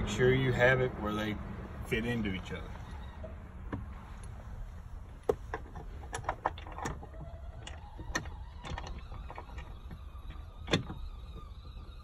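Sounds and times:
grab handle clicks and knocks: 0:05.2 - 0:11.0.

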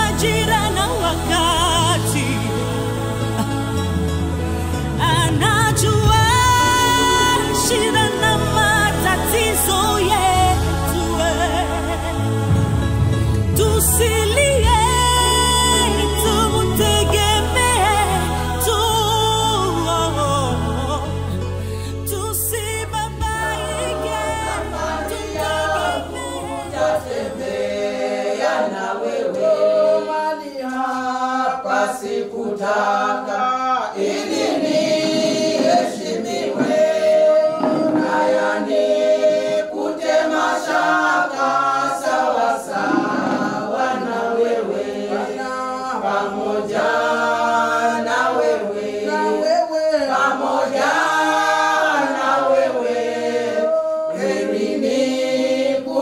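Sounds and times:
choir singing: 0:00.0 - 0:21.1, 0:22.8 - 0:56.0
low bass: 0:00.0 - 0:27.0.

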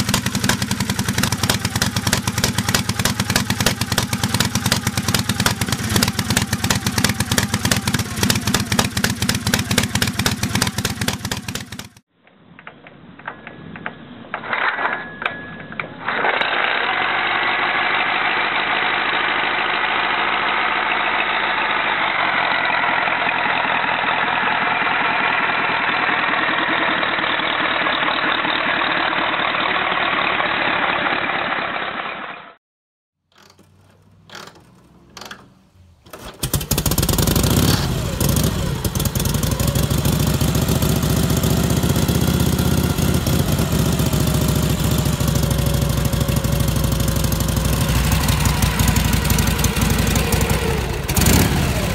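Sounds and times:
engine sputters: 0:00.0 - 0:12.0, 0:16.0 - 0:32.2, 0:36.2 - 0:51.9
v-twin engine running: 0:00.0 - 0:12.0, 0:19.5 - 0:31.7, 0:36.4 - 0:51.9
four-cylinder engine running: 0:00.0 - 0:12.1, 0:16.3 - 0:32.3, 0:33.6 - 0:51.9.

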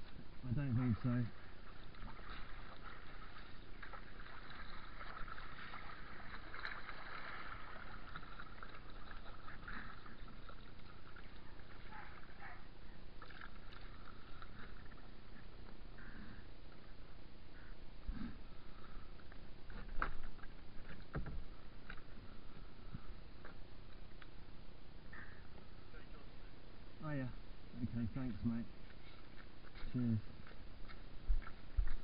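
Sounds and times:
water rushing along hull: 0:00.4 - 0:15.6
paddle splashing in water: 0:01.3 - 0:15.0.

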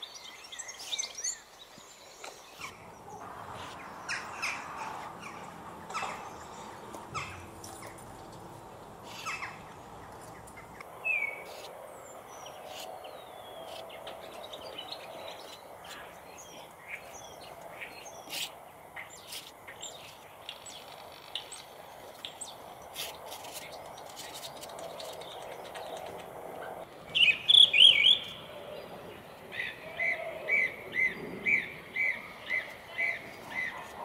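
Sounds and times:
small birds chirping: 0:00.0 - 0:34.0
painting knife scraping canvas: 0:18.3 - 0:18.5, 0:22.9 - 0:24.7.

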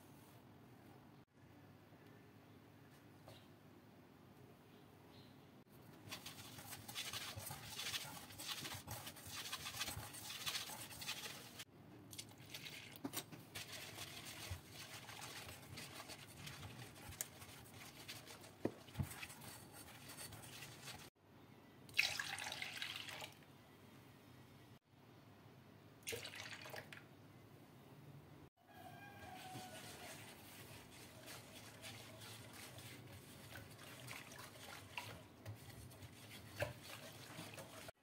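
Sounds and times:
whisk stirring batter: 0:05.9 - 0:11.7, 0:12.3 - 0:21.2, 0:29.0 - 0:38.0
milk pouring and splashing: 0:06.0 - 0:21.1, 0:21.9 - 0:23.4, 0:26.0 - 0:27.0, 0:29.6 - 0:38.0
whisk knocking against pot: 0:29.4 - 0:37.9.

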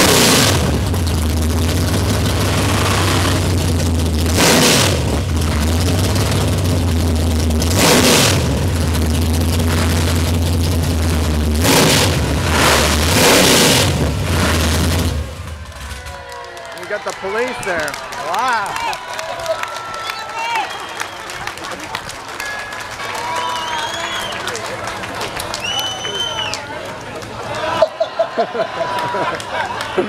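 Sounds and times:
sharp engine revs: 0:00.0 - 0:15.6
engines idling loudly: 0:00.0 - 0:18.4.

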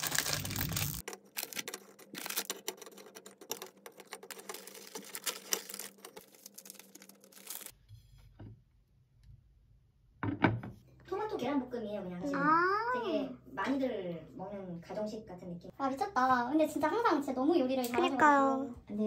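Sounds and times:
foil packet crinkling: 0:00.0 - 0:07.8.

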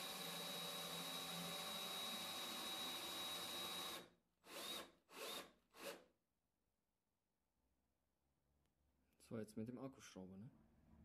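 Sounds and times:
power drill whirring with high whine: 0:00.0 - 0:06.0.

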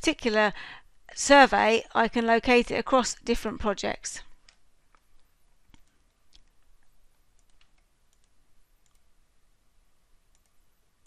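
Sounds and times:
faint computer mouse clicks: 0:04.4 - 0:09.1, 0:10.3 - 0:10.6.

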